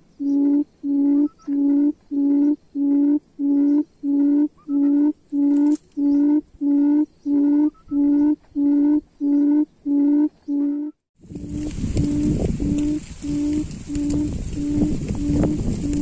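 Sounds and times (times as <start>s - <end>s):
quail call from loudspeaker: 0.4s - 10.9s.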